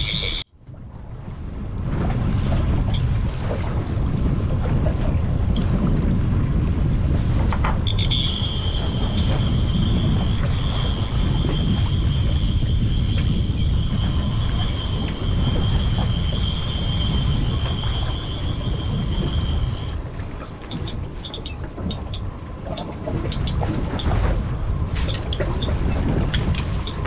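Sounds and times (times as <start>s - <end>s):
steady high whine: 0.0s - 0.5s, 7.9s - 20.0s
wind and hull noise: 0.0s - 27.0s
outboard motors running: 7.5s - 27.0s.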